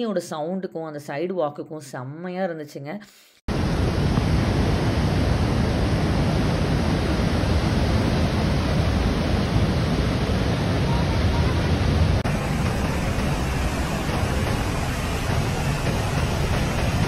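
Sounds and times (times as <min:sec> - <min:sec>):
river water rushing over falls: 0:03.5 - 0:17.0.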